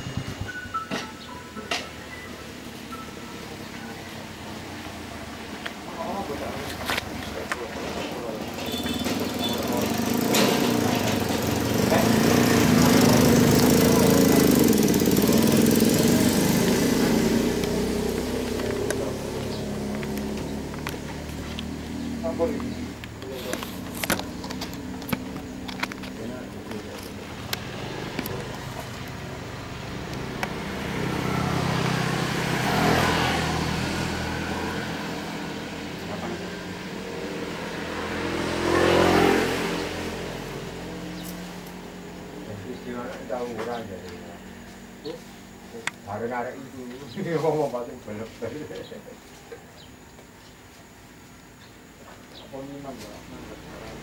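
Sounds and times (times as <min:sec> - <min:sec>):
motor vehicles passing by: 0:00.0 - 0:54.0
small engine humming: 0:08.2 - 0:42.8.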